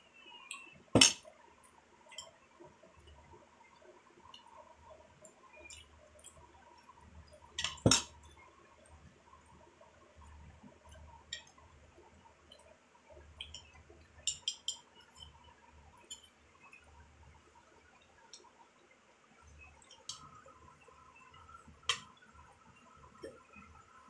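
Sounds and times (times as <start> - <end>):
metal spoon clinking glass bowl: 14.3 - 15.3.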